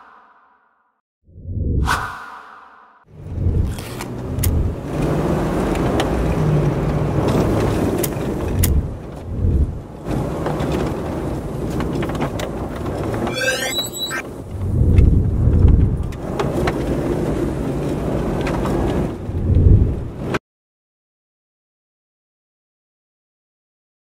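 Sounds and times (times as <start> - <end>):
road vehicle rumble: 3.1 - 13.3, 14.2 - 20.4
high rising chirps: 13.3 - 14.2.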